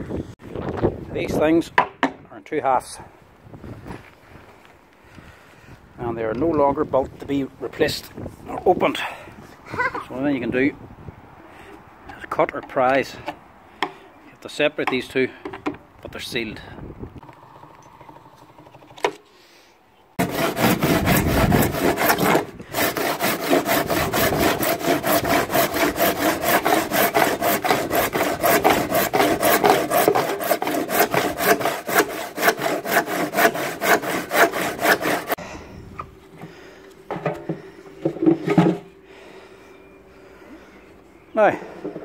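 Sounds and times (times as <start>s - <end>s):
hand saw cutting plastic: 20.2s - 35.4s
knocks and scrapes: 37.1s - 38.9s.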